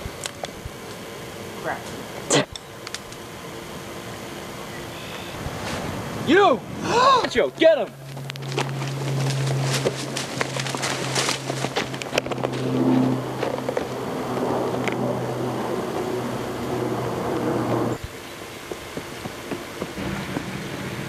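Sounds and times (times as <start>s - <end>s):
steady low hum: 0.0s - 21.0s
footsteps crunching dry leaves: 7.9s - 14.1s.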